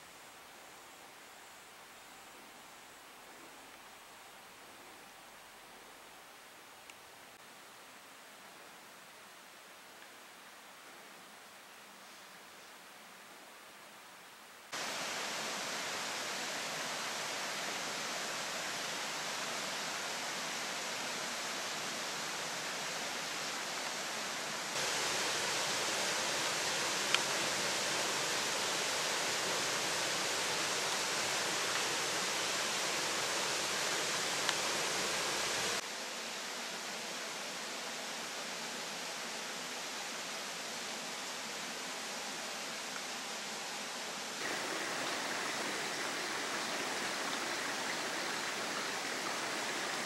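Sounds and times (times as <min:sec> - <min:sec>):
flowing stream rushing: 0:14.8 - 0:35.8, 0:44.4 - 0:50.0.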